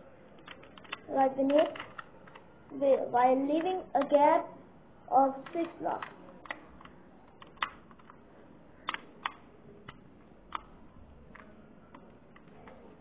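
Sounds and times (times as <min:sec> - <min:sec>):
plastic bricks clicking: 0:05.4 - 0:08.2.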